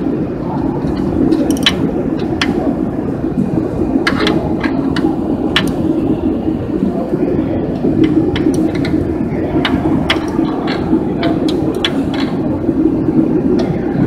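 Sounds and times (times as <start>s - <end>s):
low mechanical rumble: 0.0s - 14.0s
ratchet wrench clicking: 1.4s - 1.8s.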